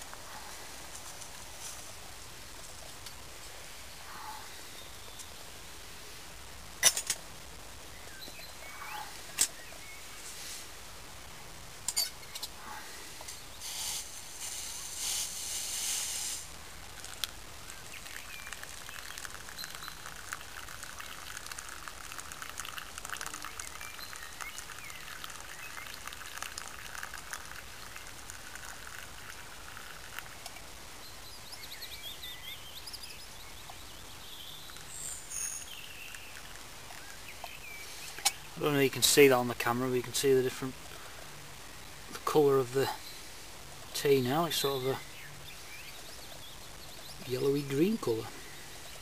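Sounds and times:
faint bird chirps: 0:07.9 - 0:10.3, 0:17.7 - 0:20.2, 0:23.2 - 0:27.0, 0:31.0 - 0:38.9, 0:41.7 - 0:49.0
tea trickling into cup: 0:16.9 - 0:30.7, 0:34.6 - 0:41.4.

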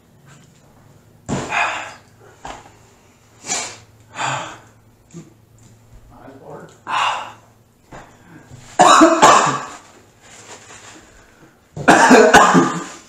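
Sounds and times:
person coughing hard: 0:08.8 - 0:09.8, 0:11.8 - 0:13.0.

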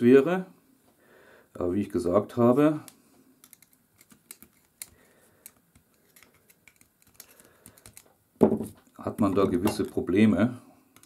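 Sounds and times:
small metal parts clicking: 0:03.4 - 0:08.1.

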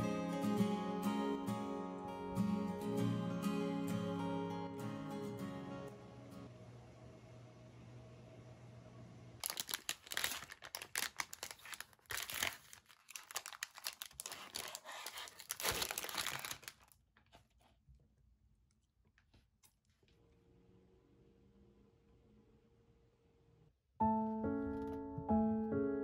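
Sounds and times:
plastic wrapper crinkling: 0:09.4 - 0:17.0.

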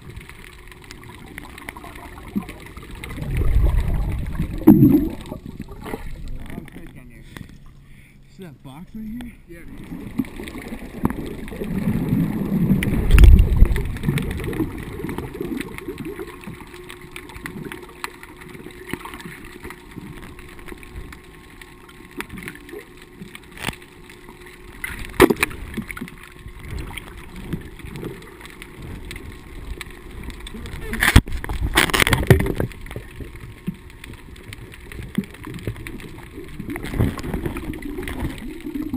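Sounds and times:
underwater water turbulence rumble: 0:00.0 - 0:07.9, 0:09.4 - 0:38.9
underwater clicks and knocks: 0:24.8 - 0:38.9.

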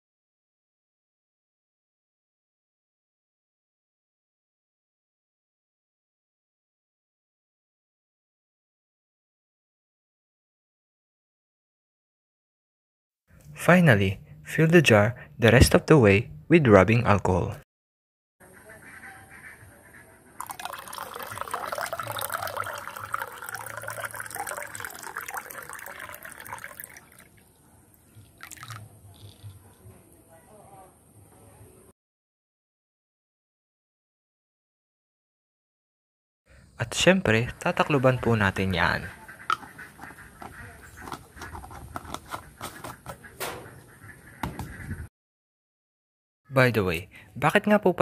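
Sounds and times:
liquid pouring into glass jar: 0:20.4 - 0:29.6.

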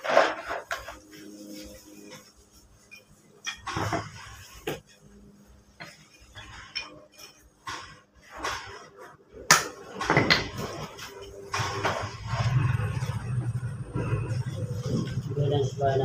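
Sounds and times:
plastic bags rustling: 0:00.0 - 0:06.6.

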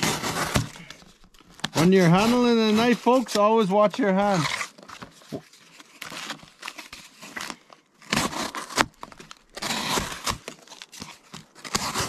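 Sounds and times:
knife cutting cardboard: 0:00.0 - 0:03.5, 0:04.2 - 0:05.4, 0:06.0 - 0:12.0.

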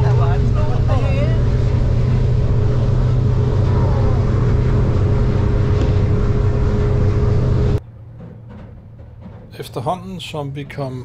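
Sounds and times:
thin steady whine: 0:00.0 - 0:07.8
boat engine deep hum: 0:00.0 - 0:11.0.

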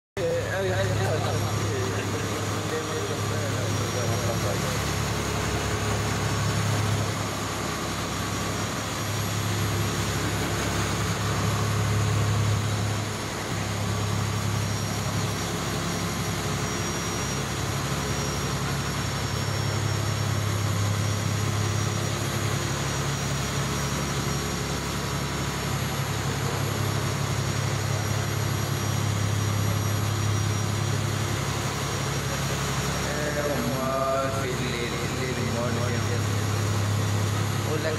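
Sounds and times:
foaming water rushing: 0:00.2 - 0:18.3
boat engine droning: 0:00.2 - 0:37.9.

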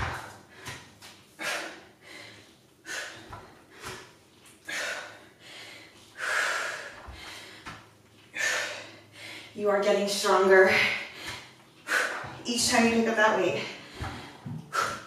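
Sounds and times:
dumbbells thudding on mat: 0:00.0 - 0:00.9
woman breathing heavily: 0:00.0 - 0:09.7, 0:10.5 - 0:12.5, 0:13.4 - 0:15.0.

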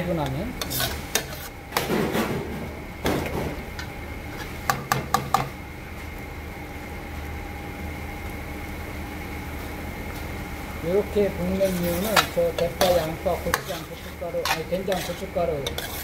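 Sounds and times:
metal spoon scraping paste in a pan: 0:00.6 - 0:01.6, 0:11.6 - 0:16.0.

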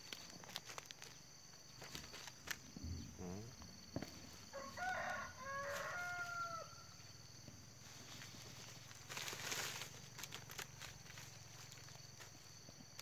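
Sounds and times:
dry cane stalks snapping underfoot: 0:00.0 - 0:01.2, 0:08.1 - 0:13.0
rooster crowing: 0:04.4 - 0:07.0.

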